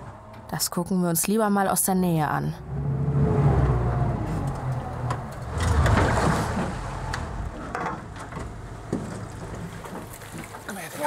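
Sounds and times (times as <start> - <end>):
boat motor humming: 2.3 - 10.7.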